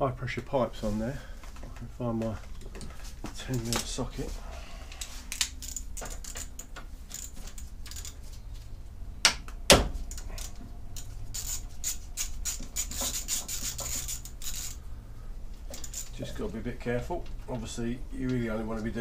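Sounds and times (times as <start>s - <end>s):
socket ratchet clicking: 5.3s - 8.2s, 10.1s - 14.8s, 15.7s - 16.2s.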